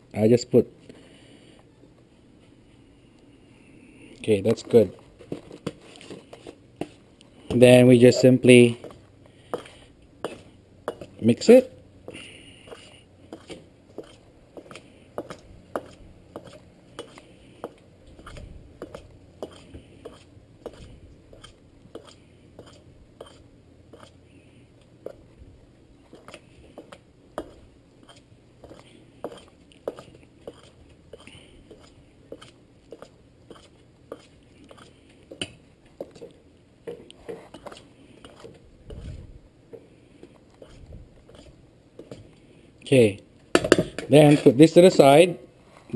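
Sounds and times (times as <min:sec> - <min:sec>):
fork scraping through flour: 0:08.0 - 0:11.1, 0:12.2 - 0:17.3, 0:18.1 - 0:24.2, 0:26.1 - 0:35.1, 0:37.2 - 0:39.2, 0:40.6 - 0:41.6.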